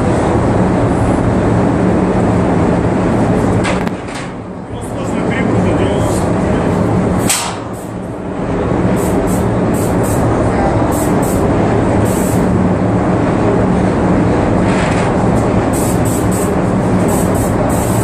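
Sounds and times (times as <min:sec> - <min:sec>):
paint sprayer rumbling hum: 0:04.5 - 0:18.0
spray gun hissing: 0:09.0 - 0:10.3, 0:10.9 - 0:11.4, 0:12.0 - 0:12.5, 0:15.7 - 0:18.0.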